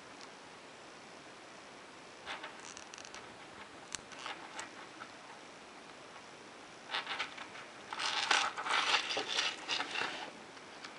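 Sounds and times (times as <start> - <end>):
small clicks: 2.3 - 5.1.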